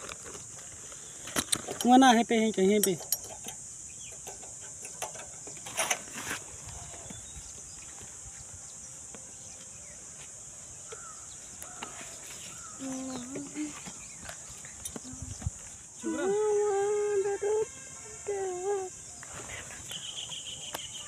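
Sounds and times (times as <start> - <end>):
sacks rustling and knocking: 0.0 - 1.9
steady high hiss: 0.0 - 21.0
faint bird calls: 10.8 - 17.5, 18.7 - 21.0.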